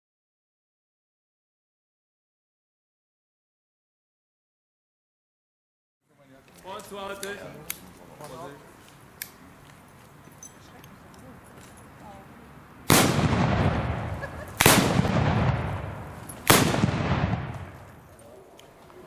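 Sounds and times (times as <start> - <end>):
salute gun shots echoing: 12.9 - 18.0.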